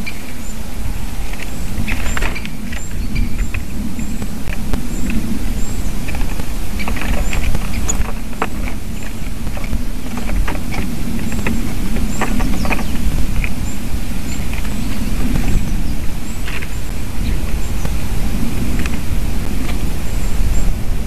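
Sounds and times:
faint high bird calls: 0.0 - 0.6, 1.3 - 18.1
wind rumble on microphone: 0.0 - 21.0.

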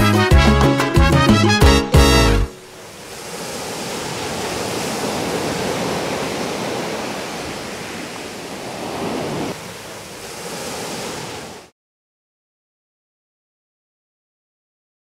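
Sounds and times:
waves breaking on a beach: 2.5 - 11.7.

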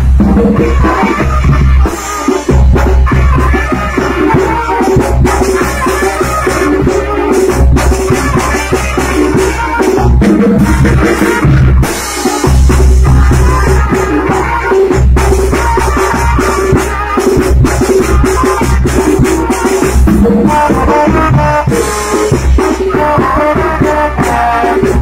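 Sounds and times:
bass drum beaten steadily: 0.0 - 25.0
sustained low brass notes: 17.7 - 25.0.

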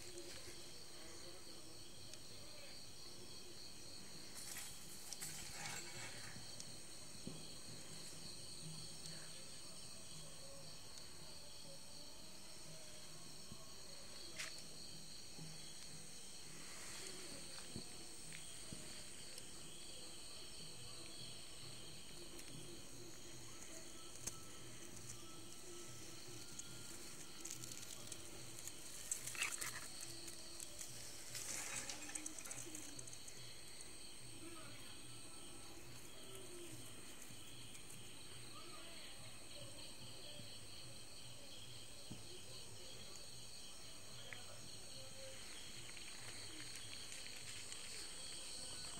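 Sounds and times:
crickets trilling: 0.0 - 48.9
night insects chirring: 0.0 - 48.9.

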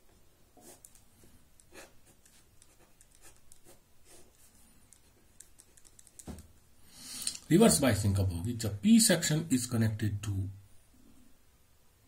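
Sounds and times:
ballpoint pen scratching on paper: 0.6 - 6.4.

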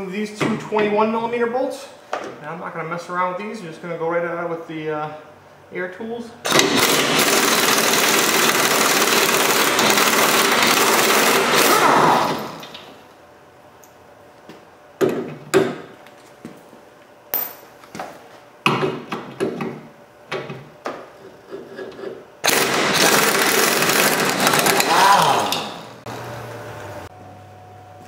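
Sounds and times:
pneumatic impact wrench rattling: 6.5 - 12.8, 22.4 - 26.0.

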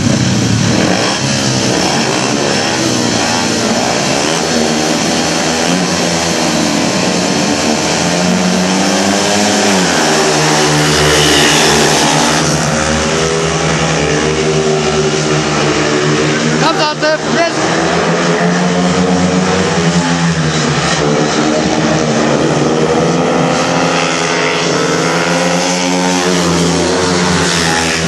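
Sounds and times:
distant motorcycle engines racing: 0.0 - 28.0
motorcycles revving: 0.0 - 28.0.

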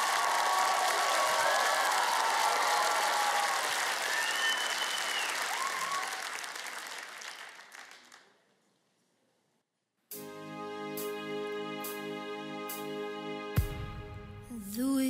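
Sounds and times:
studio audience applauding: 0.0 - 8.6.

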